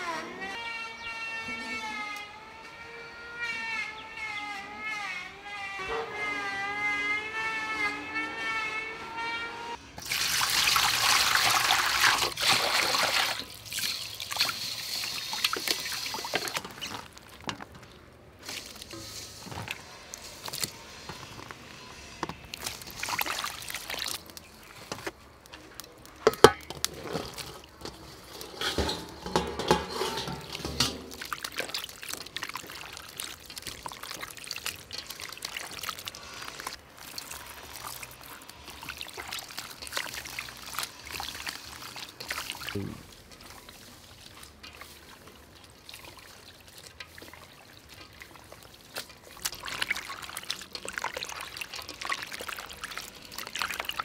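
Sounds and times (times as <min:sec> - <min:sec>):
water splashing and sloshing: 0:07.9 - 0:54.0
water poured into metal bowl: 0:10.0 - 0:20.8, 0:22.4 - 0:25.1, 0:26.2 - 0:54.0.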